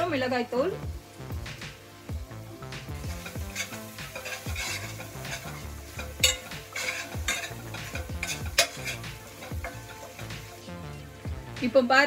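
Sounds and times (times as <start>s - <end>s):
oil sizzling: 0.0s - 12.0s
metal spoon scraping a pot: 3.0s - 10.6s
spoon clinking against pot: 3.1s - 10.5s.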